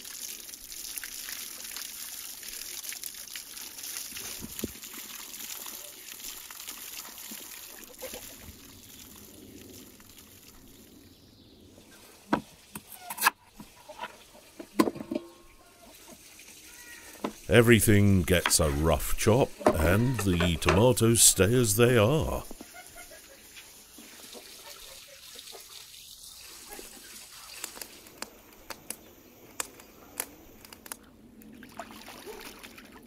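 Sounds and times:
water trickling and splashing: 0.0 - 12.8, 13.4 - 17.5, 22.5 - 28.9, 30.8 - 33.0.

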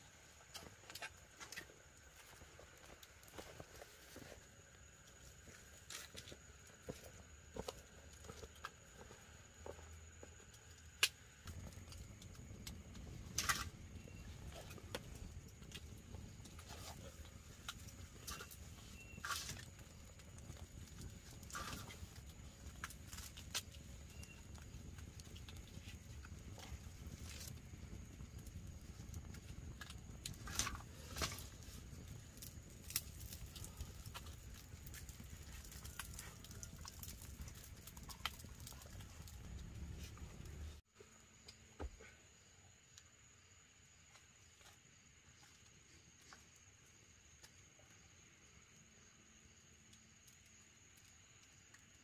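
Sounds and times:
campfire flames rushing: 0.1 - 40.8
fire popping and cracking: 0.4 - 40.8.

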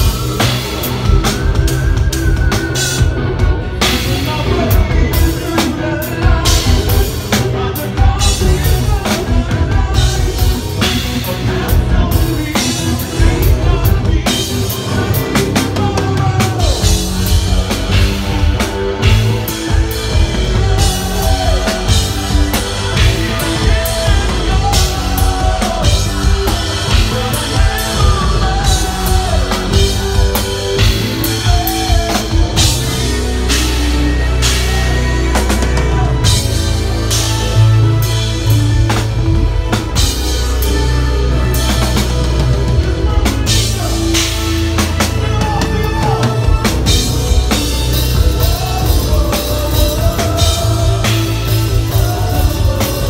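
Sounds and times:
bass: 0.0 - 53.0
drum kit: 0.0 - 53.0
electric guitar: 0.0 - 53.0
keyboards: 0.0 - 53.0
lead singer: 0.0 - 53.0.

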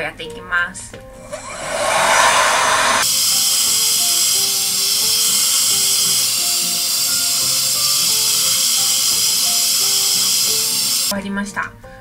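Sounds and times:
hair dryer blowing: 1.3 - 3.1.

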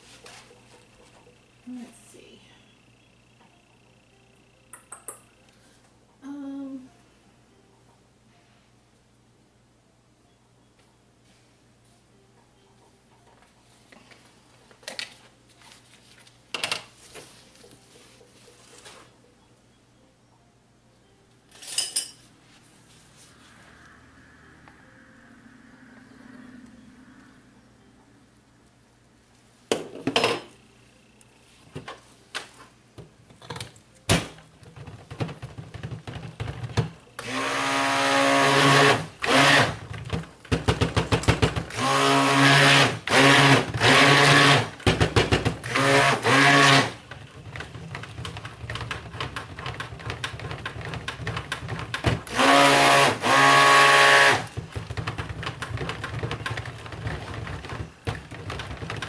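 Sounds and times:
stick blender buzzing: 37.2 - 39.9, 40.6 - 50.0, 50.8 - 59.0.

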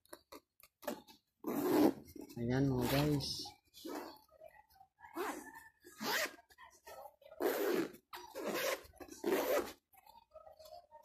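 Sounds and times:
zipper being pulled: 0.8 - 3.1, 3.8 - 4.2, 5.1 - 5.4, 6.0 - 6.4, 7.4 - 9.8.

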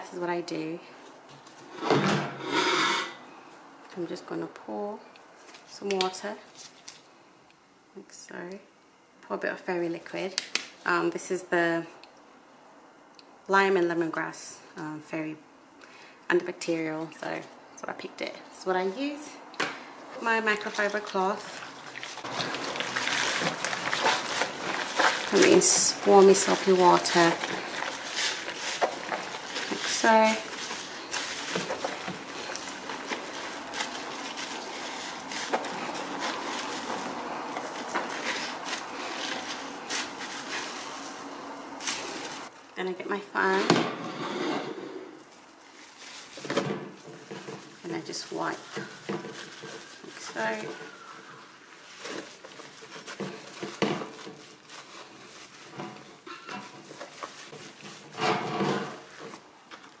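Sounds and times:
cloth squelching in soapy water: 20.3 - 42.5.

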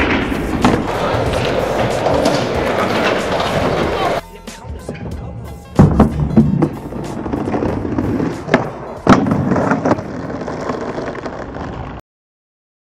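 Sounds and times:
skateboard clacks: 0.0 - 4.2, 5.8 - 12.0
skateboard wheels rolling on asphalt: 0.0 - 4.2, 6.2 - 12.0.

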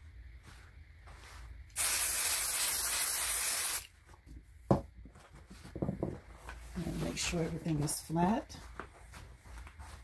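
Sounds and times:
aerosol can spraying: 1.7 - 3.9.

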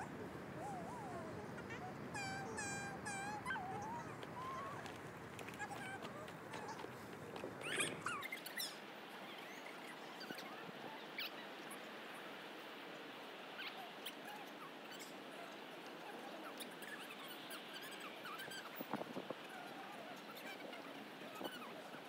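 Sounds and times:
steady outdoor hiss: 0.0 - 22.0
high chirps and squeaks: 7.6 - 8.8.

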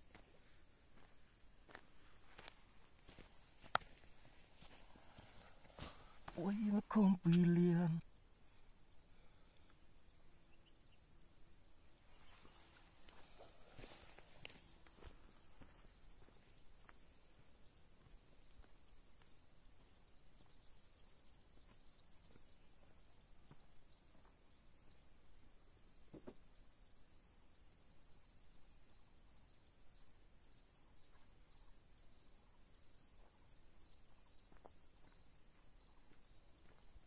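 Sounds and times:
high insect trilling: 5.2 - 9.0.

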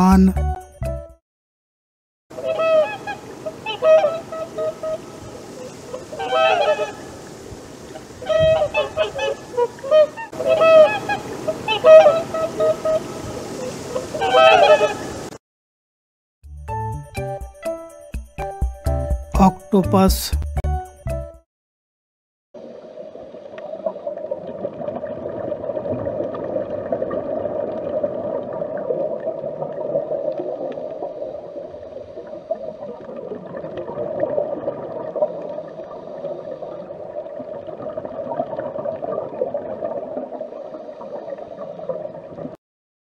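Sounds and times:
underwater gurgling and crackle: 22.6 - 42.6.

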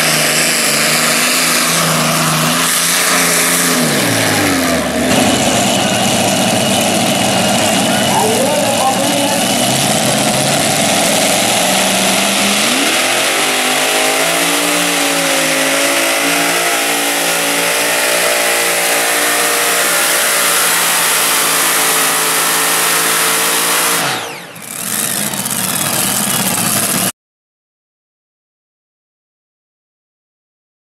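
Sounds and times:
pulling tractor engine at full throttle: 0.0 - 27.1.

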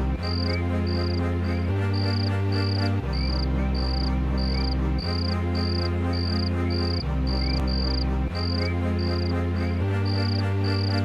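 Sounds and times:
music of sustained low tones: 0.0 - 11.0
cricket chirping: 2.0 - 9.3.

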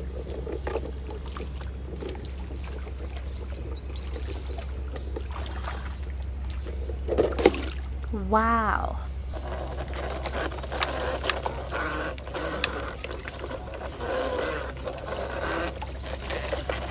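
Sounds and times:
toy car sloshing through mud: 9.4 - 16.9.

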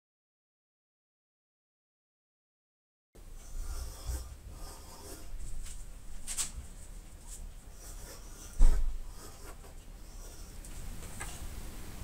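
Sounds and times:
pencil lead scratching on board: 3.4 - 11.5.

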